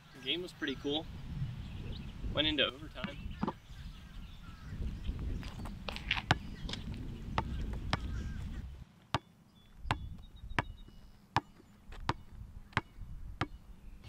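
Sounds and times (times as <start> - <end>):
basketball bouncing on asphalt: 3.0 - 3.6, 5.2 - 13.6.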